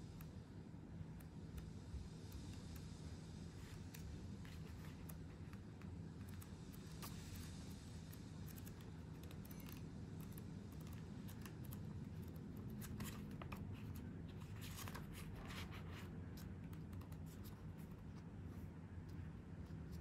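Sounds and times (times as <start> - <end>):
low steady hum: 0.0 - 20.0
paper pages flipping: 11.2 - 18.3.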